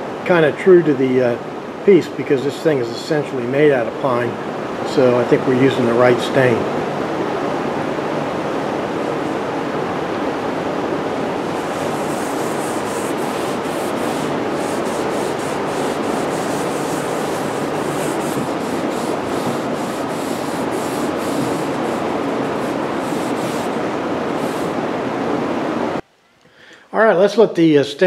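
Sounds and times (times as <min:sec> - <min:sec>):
steady rushing noise: 0:04.3 - 0:26.0
cloth rag wiping wood: 0:11.4 - 0:24.8.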